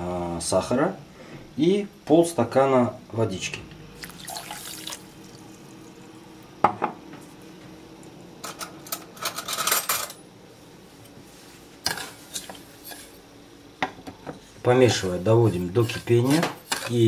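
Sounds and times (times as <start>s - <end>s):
clinking and scraping in pan: 11.9s - 13.2s, 15.8s - 17.0s.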